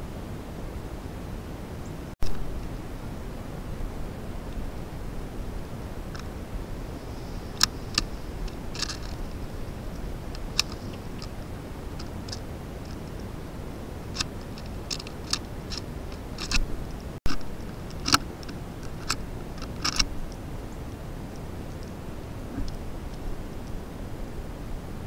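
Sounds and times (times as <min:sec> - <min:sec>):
microphone hiss: 0:00.0 - 0:25.0
small birds chipping: 0:06.0 - 0:24.1.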